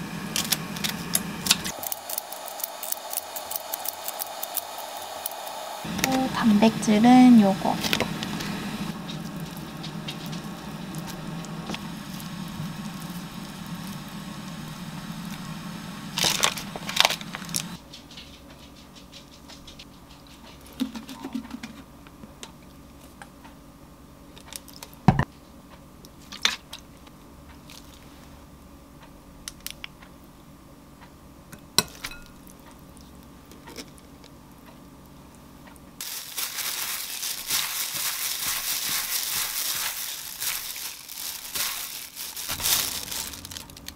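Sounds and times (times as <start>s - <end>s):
steady low hum: 0.0s - 43.9s
gloved hand rustling food: 7.8s - 15.2s, 36.0s - 43.9s.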